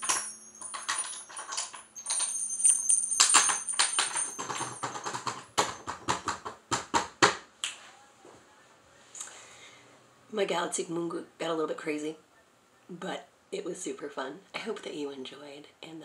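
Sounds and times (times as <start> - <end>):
small bells jingling: 0.0 - 6.3.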